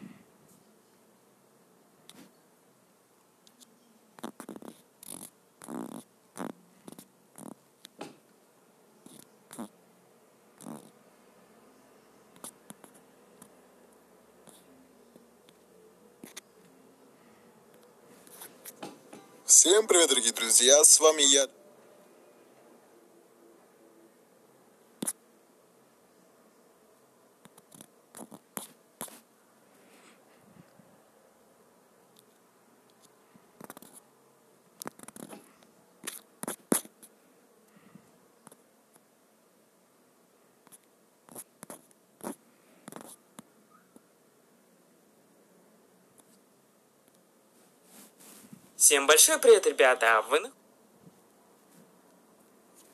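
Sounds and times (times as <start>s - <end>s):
quiet hiss: 0.0s - 52.9s
scratchy rustles: 47.6s - 48.7s.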